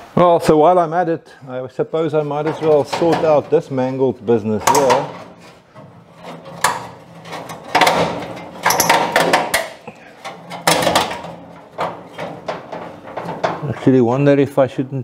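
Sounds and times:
metal grille bars scraping and clanking: 2.1s - 14.1s.

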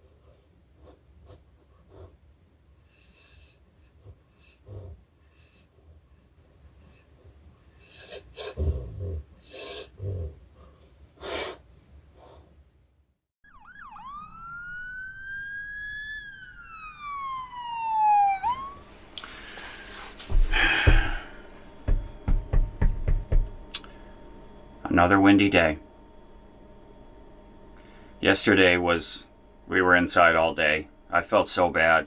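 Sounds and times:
dog snorting breaths: 0.0s - 2.2s, 2.8s - 12.6s, 19.3s - 22.3s
siren wail: 13.4s - 22.6s
quick thumps: 19.9s - 23.8s.

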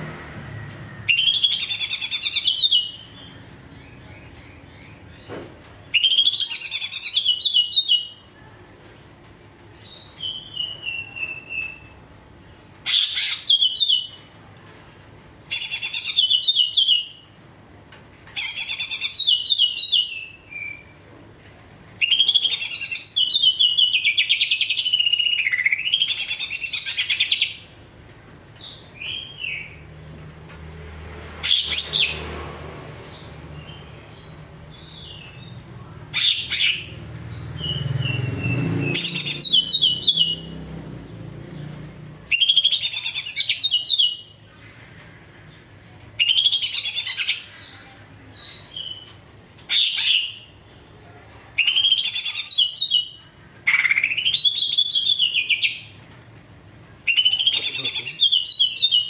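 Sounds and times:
bird singing trilled phrases: 5.8s - 8.3s, 9.8s - 12.3s, 12.9s - 14.3s, 15.5s - 17.2s, 18.4s - 21.0s, 22.0s - 27.6s, 33.4s - 40.5s, 42.3s - 44.6s, 46.2s - 50.9s, 51.6s - 56.0s, 57.0s - 59.0s.

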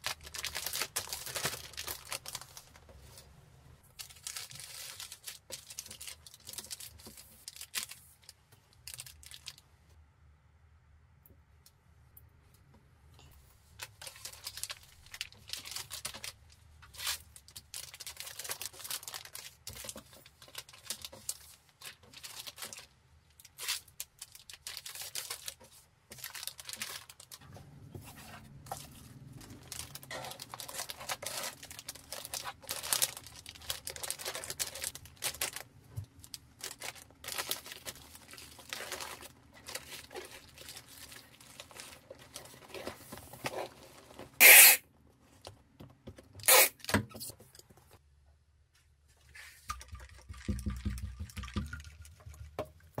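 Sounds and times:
plastic bags crinkling: 0.0s - 3.2s, 3.8s - 9.6s, 13.8s - 27.5s, 28.5s - 44.8s
bubble wrap handled: 0.0s - 9.6s, 13.6s - 44.8s.

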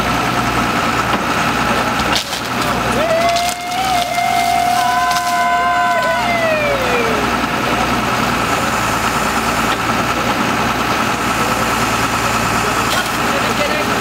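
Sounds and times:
hydraulic crane whine: 0.0s - 14.0s
truck engine and hydraulics running: 0.0s - 14.0s.

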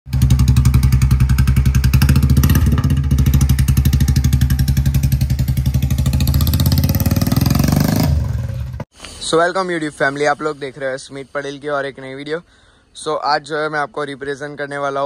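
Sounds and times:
motorcycle engine pulling away: 0.1s - 8.8s.

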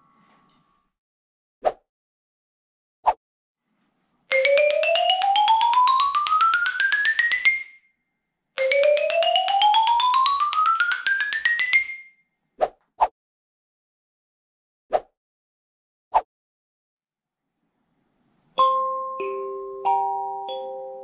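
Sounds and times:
xylophone rising scale: 4.3s - 7.8s, 8.6s - 12.1s.

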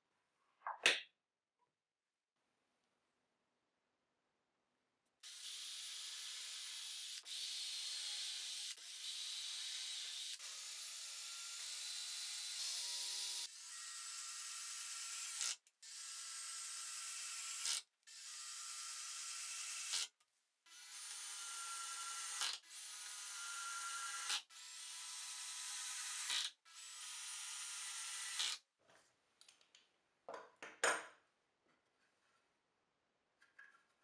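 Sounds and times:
drill driving screws into wood: 5.2s - 20.1s, 20.7s - 28.6s.

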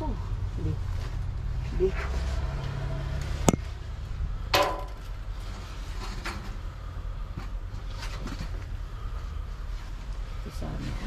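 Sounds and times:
steady low rumble: 0.0s - 11.0s
clatter inside a dumpster: 4.5s - 8.8s.

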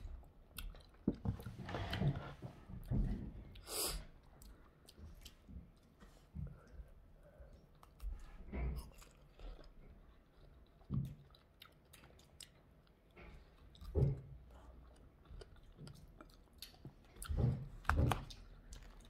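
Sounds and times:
biting and chewing strawberries: 7.6s - 19.0s.

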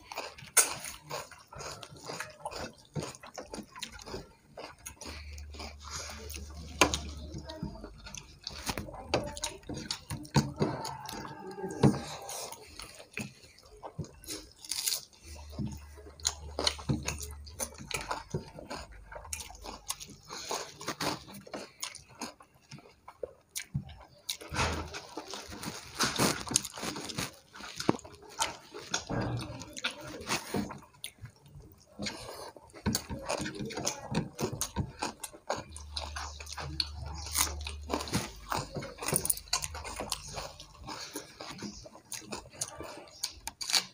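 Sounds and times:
fingers mixing rice on plates: 0.0s - 43.9s
wet chewing and mouth clicks: 0.0s - 43.9s.

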